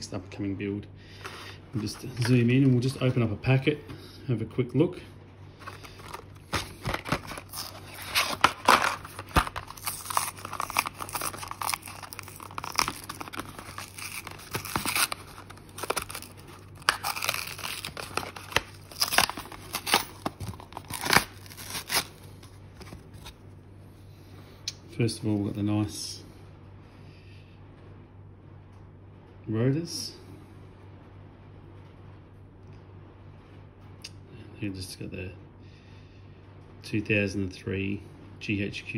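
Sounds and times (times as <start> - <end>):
blister pack tearing open: 5.6 - 23.3.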